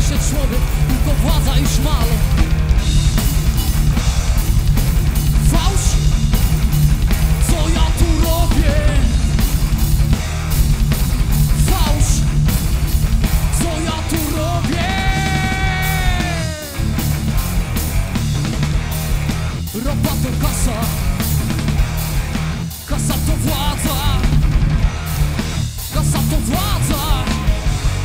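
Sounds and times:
bass guitar: 0.0s - 28.0s
drum kit beat: 0.0s - 28.0s
electric guitar: 0.0s - 28.0s
man singing into microphone: 5.4s - 6.0s, 7.4s - 9.2s, 11.6s - 12.2s, 13.6s - 16.8s, 19.8s - 21.0s, 22.9s - 24.2s, 25.9s - 27.7s.

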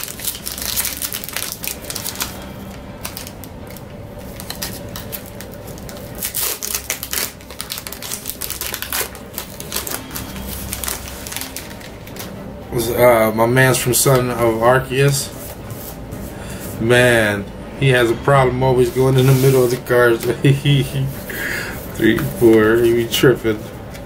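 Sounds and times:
foil wrapper crinkling: 0.0s - 12.4s.

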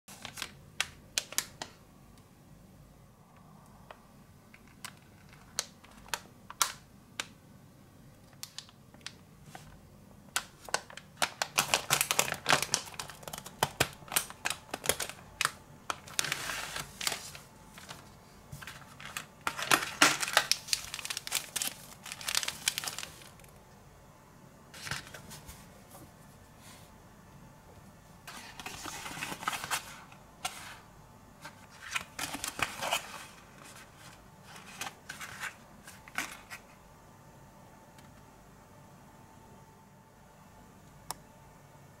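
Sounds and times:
plastic packaging crinkling: 0.1s - 1.8s, 10.4s - 23.6s, 28.2s - 30.8s, 31.4s - 36.8s.

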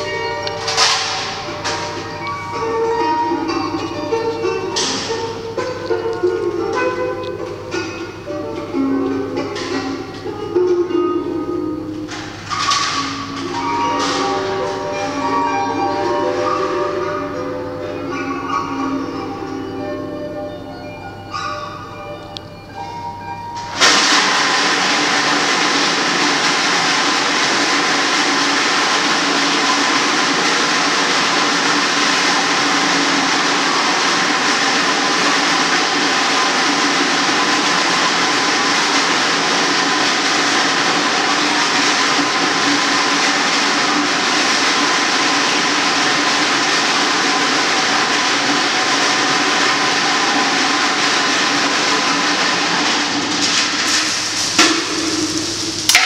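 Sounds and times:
faint hum: 0.0s - 23.8s
loud rushing noise: 12.0s - 21.0s.

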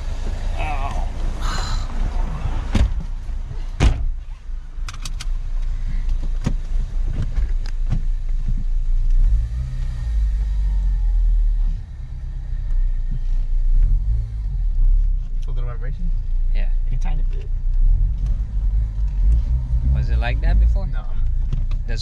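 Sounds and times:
sharp clicks and knocks: 4.8s - 5.4s.

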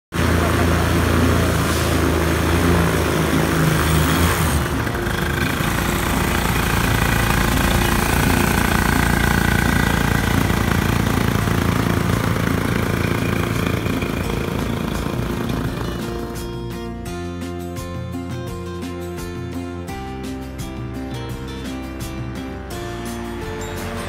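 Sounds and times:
small aircraft engine and propeller: 0.1s - 17.0s, 21.6s - 24.0s.

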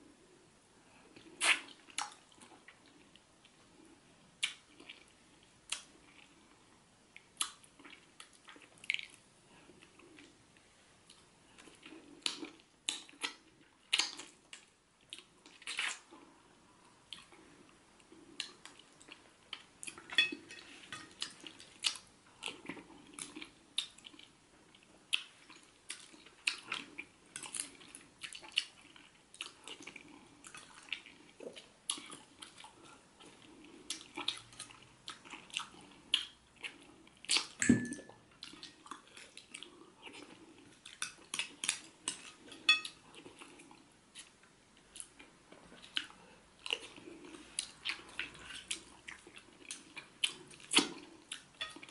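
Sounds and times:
lip smacks: 4.4s - 5.0s, 33.9s - 37.7s
wet chewing: 18.3s - 37.6s.

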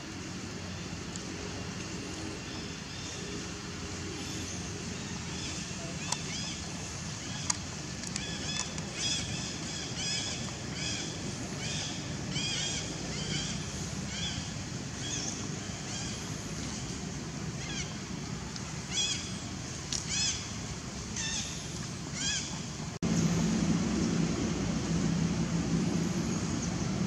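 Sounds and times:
steady low rumble: 0.0s - 27.0s.

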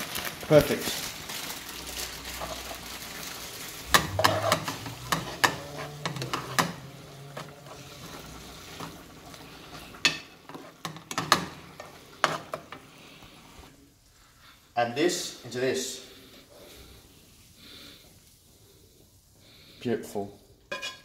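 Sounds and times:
vegetables sizzling in a frying pan: 0.0s - 14.2s, 16.6s - 19.6s
metal spoon scraping a pan: 3.9s - 13.0s, 20.7s - 21.0s.

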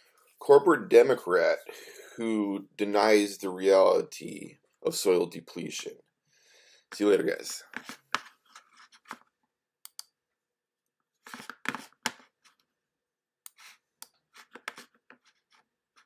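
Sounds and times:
computer mouse clicks: 9.8s - 10.1s.

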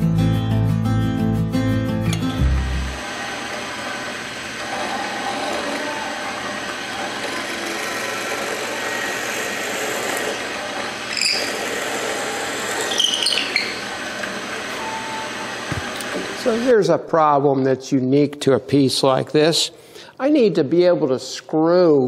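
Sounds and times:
drill press boring into wood: 3.0s - 16.7s
high squeaks: 11.1s - 11.8s, 12.6s - 15.5s.

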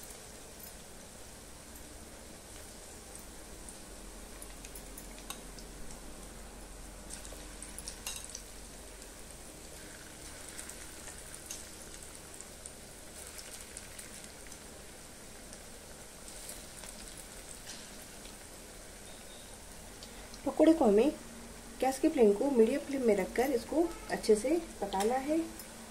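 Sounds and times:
food deep-frying in oil: 0.0s - 25.9s
oil crackling and popping: 2.5s - 19.1s, 24.8s - 25.8s.

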